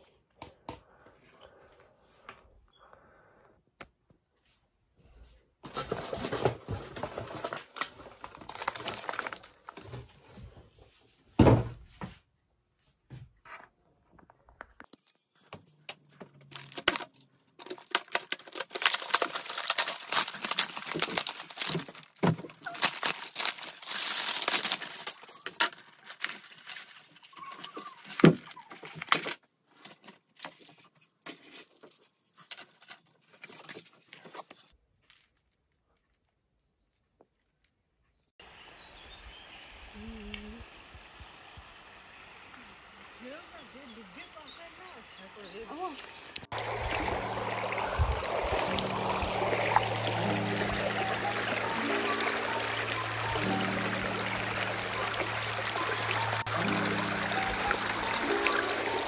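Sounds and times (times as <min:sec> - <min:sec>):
crinkling and tearing by hand: 0:05.7 - 0:10.2, 0:16.3 - 0:36.2.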